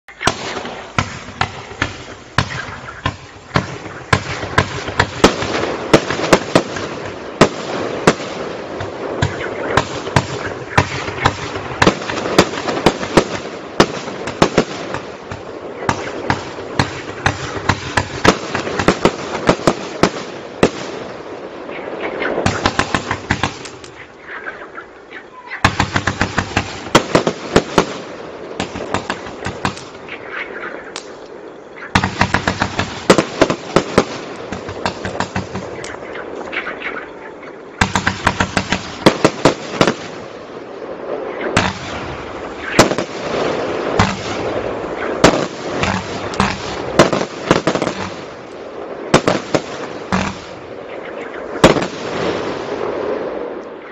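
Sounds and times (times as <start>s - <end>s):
firework cake firing: 0.2s - 21.0s, 32.0s - 37.0s, 37.8s - 53.5s.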